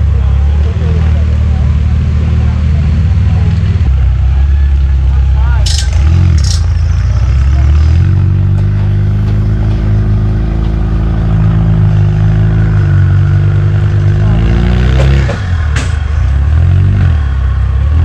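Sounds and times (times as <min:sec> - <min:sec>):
buggy engine revving high: 0:00.0 - 0:18.0.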